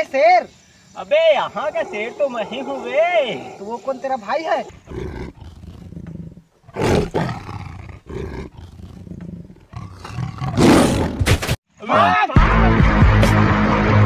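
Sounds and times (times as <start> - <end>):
tiger roar: 1.4 - 11.3.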